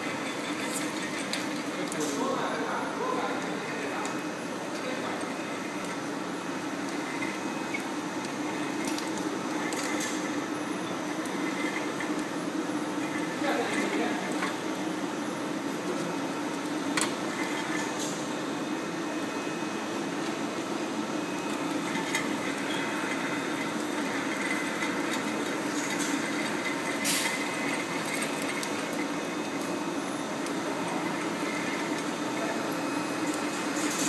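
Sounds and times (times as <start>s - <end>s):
machinery hum of motors and rollers: 0.0s - 34.0s.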